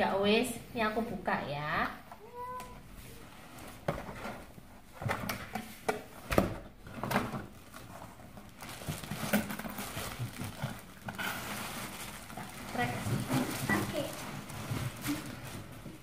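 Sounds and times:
plastic wrap rustling: 2.2 - 16.0.

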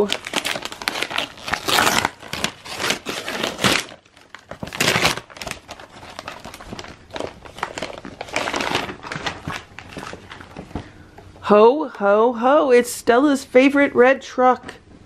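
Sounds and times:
wrapping paper rustling: 0.0 - 11.1.

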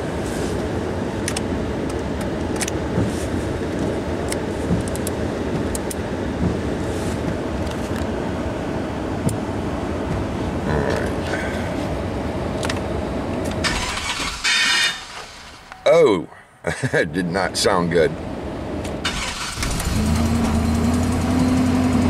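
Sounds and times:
pickup engine heard from cab: 16.7 - 22.0.

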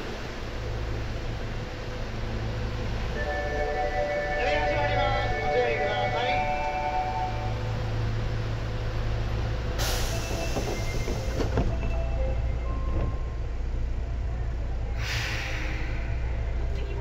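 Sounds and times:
subway train hum: 0.0 - 17.0
air hisses: 15.0 - 16.4.

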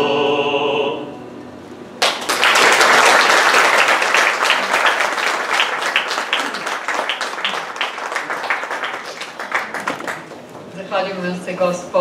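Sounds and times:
audience applauding: 2.0 - 10.7.

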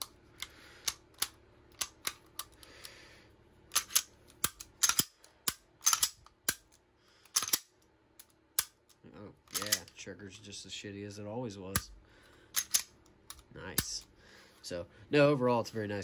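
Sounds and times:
pistol metallic clicks: 0.0 - 2.7, 3.7 - 10.0, 12.6 - 14.0.

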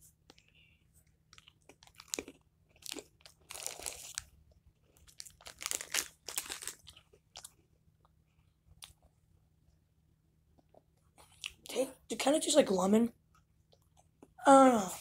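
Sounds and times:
person chewing crunchy crackers: 0.3 - 9.1, 10.6 - 11.7.

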